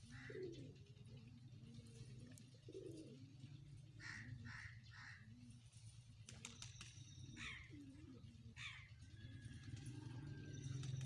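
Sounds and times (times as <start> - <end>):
bird calling: 0.0 - 3.4, 6.5 - 9.0
pigeons cooing: 0.0 - 6.6, 7.3 - 11.0.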